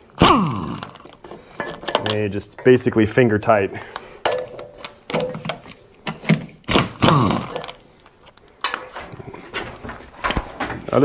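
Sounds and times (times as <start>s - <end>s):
metal bolts clunking: 1.1s - 6.5s, 8.6s - 9.2s.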